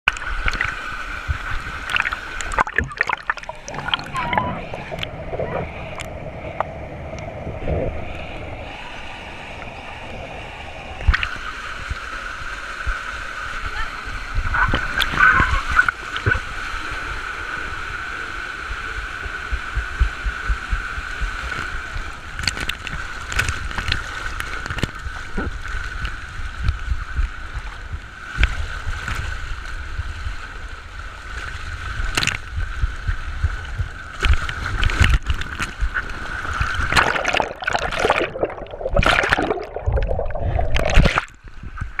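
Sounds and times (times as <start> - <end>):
rushing water hissing: 0.2 - 22.4, 34.7 - 41.4
plunge into splash pool: 34.9 - 41.4.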